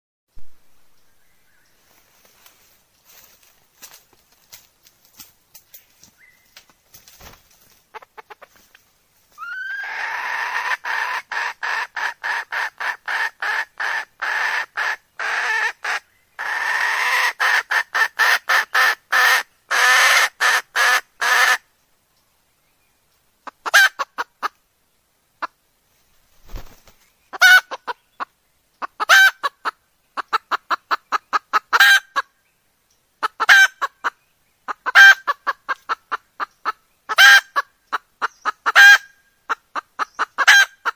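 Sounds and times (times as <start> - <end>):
hen cackling: 7.9 - 8.6, 9.4 - 21.6, 23.4 - 24.6, 27.3 - 32.3, 33.2 - 40.9.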